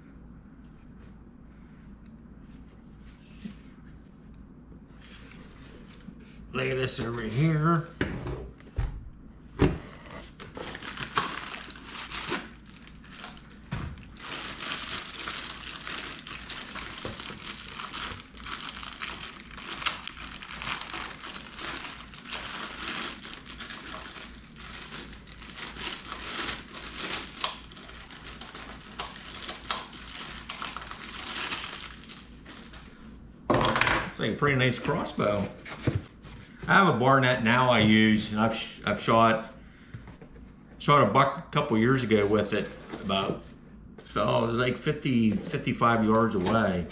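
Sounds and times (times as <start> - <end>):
plastic bag crinkling: 10.4 - 32.8.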